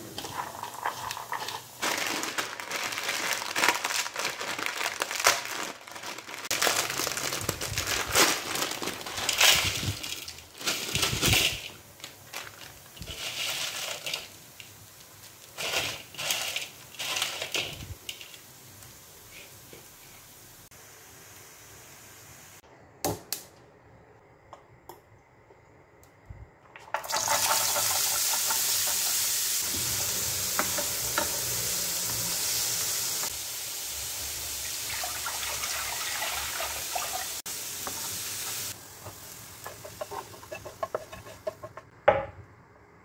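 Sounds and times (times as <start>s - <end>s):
green beans tossed in bowl: 0.1s - 2.4s, 12.7s - 14.8s, 15.4s - 18.4s
plastic wrappers crinkling: 0.3s - 18.3s.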